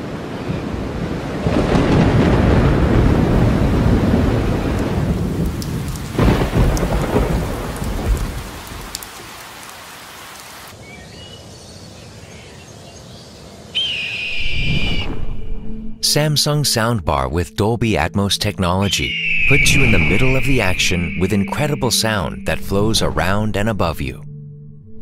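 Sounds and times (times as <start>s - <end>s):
steady rain: 0.0s - 10.9s
rolling thunder: 0.6s - 9.0s, 19.2s - 21.8s
faint bird chirps: 10.8s - 15.1s, 18.8s - 22.4s
high bird call: 13.7s - 15.1s, 18.8s - 22.4s.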